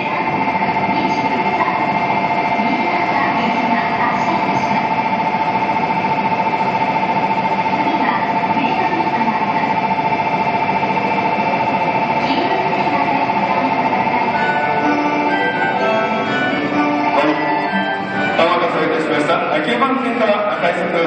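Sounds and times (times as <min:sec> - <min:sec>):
electronic bell trilling: 0:12.6 - 0:19.2.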